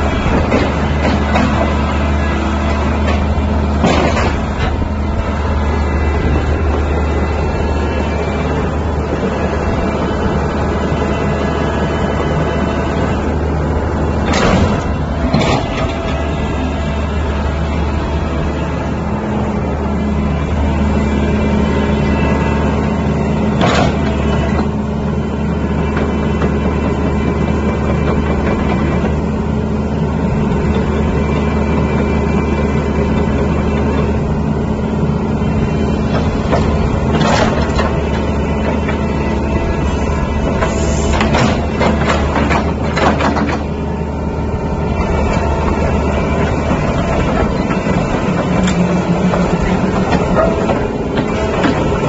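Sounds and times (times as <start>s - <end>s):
excavator diesel engine idling: 0.0s - 52.0s
short clanks: 2.7s - 4.9s.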